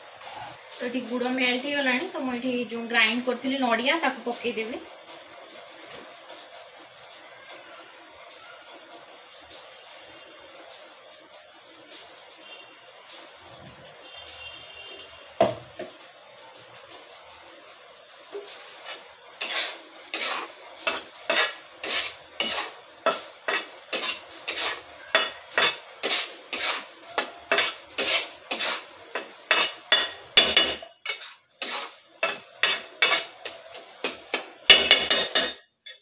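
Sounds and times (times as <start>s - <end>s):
metal spatula scraping a pan: 18.6s - 36.0s.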